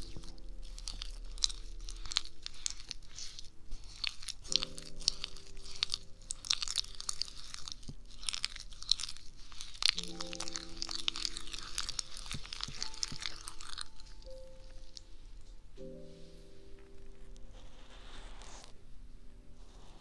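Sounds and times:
wooden spoon stirring thick paste: 0:00.0 - 0:16.2, 0:16.9 - 0:18.8.

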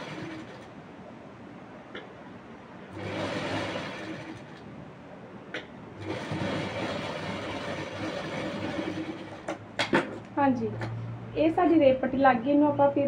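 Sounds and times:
sewing machine stitching: 0:00.0 - 0:00.7, 0:02.9 - 0:04.7, 0:06.0 - 0:09.5.

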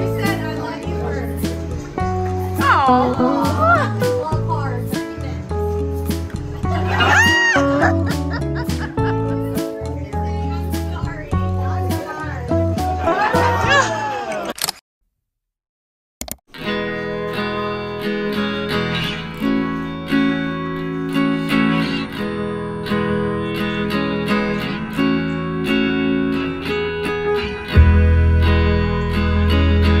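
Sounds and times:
deep bass: 0:00.0 - 0:13.8, 0:27.7 - 0:30.0
acoustic guitar: 0:00.0 - 0:14.0, 0:16.5 - 0:30.0.

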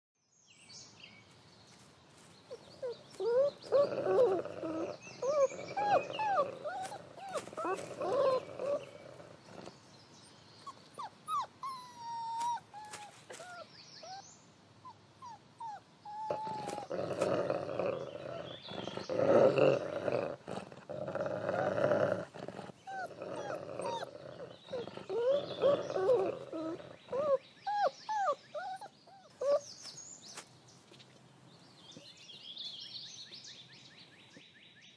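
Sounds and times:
wolf pups whimpering and squealing: 0:02.5 - 0:09.7, 0:10.6 - 0:29.9
wolf growling: 0:02.7 - 0:10.0, 0:16.1 - 0:29.6.

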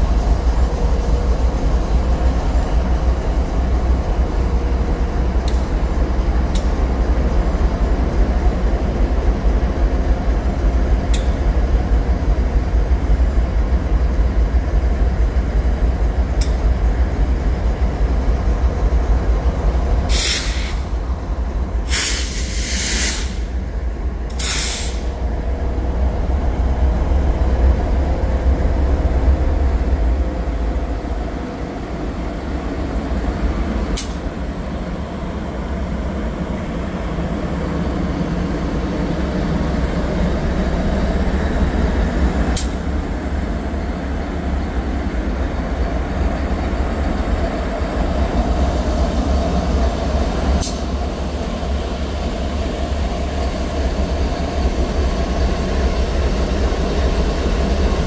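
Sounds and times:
diesel locomotive rumbling: 0:00.0 - 0:58.0
air brakes hissing: 0:20.1 - 0:21.0, 0:21.8 - 0:23.6, 0:24.3 - 0:25.2, 0:50.6 - 0:51.0.

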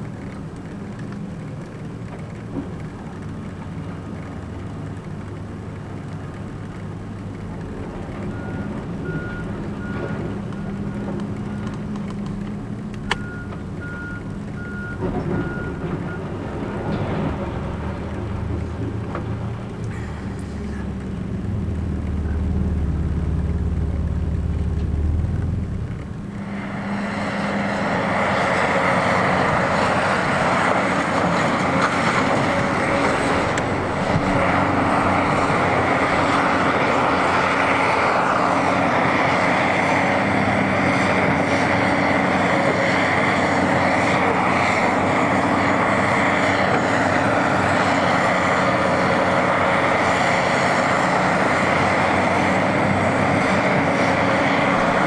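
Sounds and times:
excavator diesel engine running: 0:00.0 - 0:55.0
deep low rumble: 0:19.9 - 0:26.3.

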